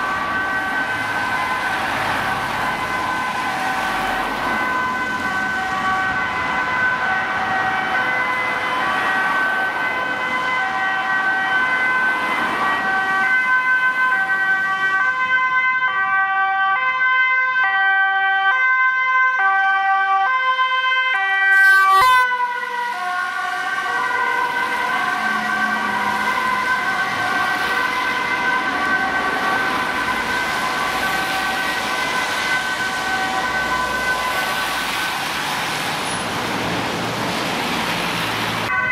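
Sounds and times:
ambulance two-tone siren: 0.0 - 36.8, 37.7 - 38.9
city traffic: 0.0 - 38.9.

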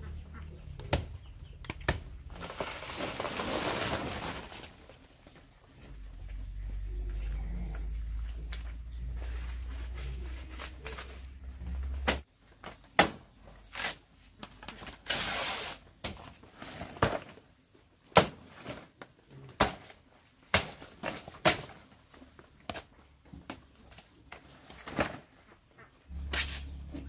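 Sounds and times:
low hum: 5.7 - 12.2.

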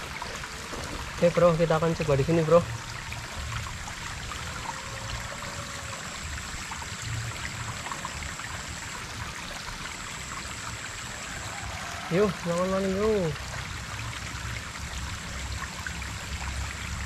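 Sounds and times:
stream trickling over stones: 0.0 - 17.0
thin high steady tone: 4.3 - 13.4.

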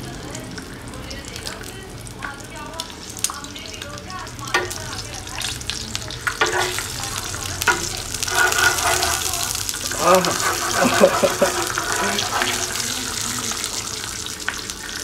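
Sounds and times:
egg sizzling in a pan: 0.0 - 15.0
metal spoon scraping a pan: 6.2 - 13.8.

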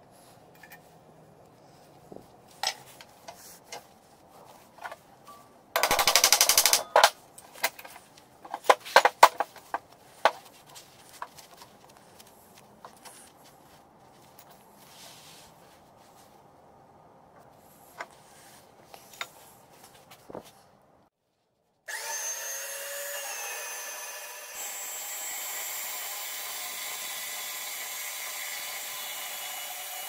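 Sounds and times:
sharp metallic clicks: 5.8 - 7.2
metal parts clinking: 5.8 - 7.9.

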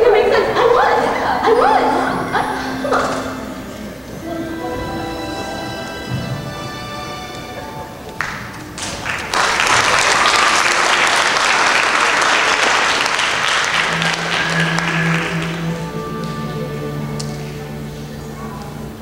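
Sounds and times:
music playing: 0.0 - 9.4, 13.0 - 19.0
audience applauding: 8.2 - 16.4.

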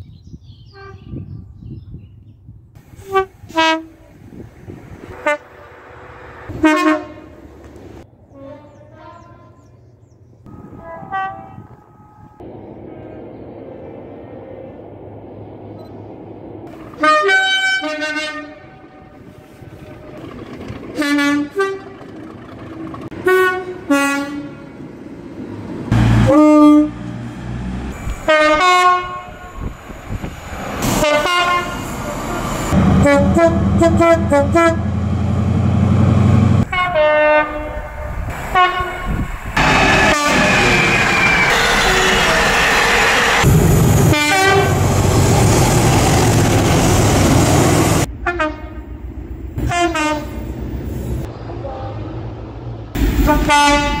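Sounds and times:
rush of passing train: 2.8 - 8.4, 10.4 - 54.0
diesel locomotive engine: 2.8 - 54.0
train horn blasts: 2.9 - 4.2, 5.0 - 7.4, 8.3 - 9.8, 10.5 - 13.2, 16.9 - 19.6, 21.0 - 22.0, 23.1 - 24.7, 25.9 - 27.3, 27.9 - 29.7, 30.9 - 35.1, 36.6 - 42.7, 43.4 - 44.9, 48.0 - 49.0, 49.6 - 50.5, 51.5 - 52.2, 53.2 - 54.0.

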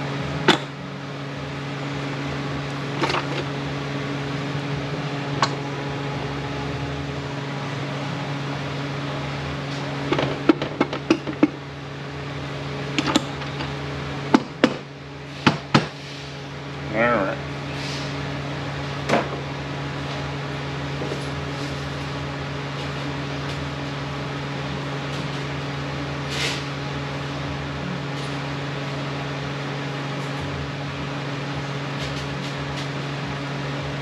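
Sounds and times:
ventilation equipment hum: 0.0 - 34.0
hissing scrape: 16.0 - 16.4, 17.7 - 18.2, 26.3 - 26.7.

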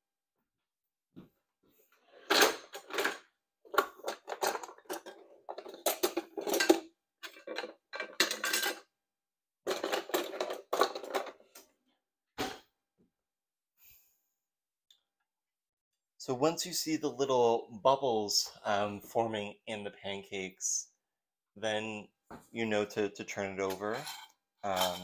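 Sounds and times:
dishes and utensils clattering: 2.2 - 8.8, 9.7 - 11.4, 23.7 - 25.0.

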